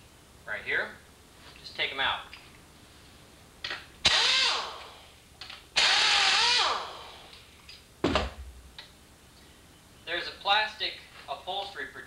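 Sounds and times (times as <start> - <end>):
pneumatic wrench whine: 4.0 - 5.1, 5.8 - 7.4
thump: 8.0 - 8.6.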